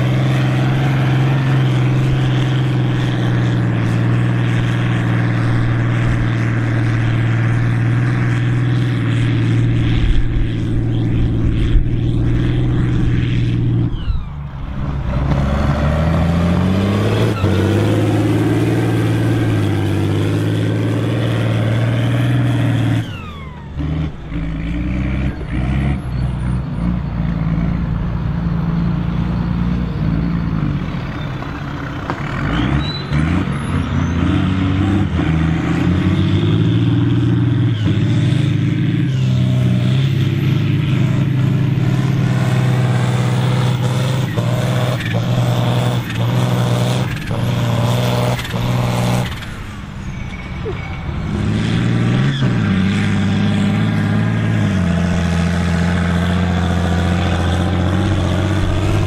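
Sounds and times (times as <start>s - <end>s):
tractor engines running hard: 0.0s - 59.0s.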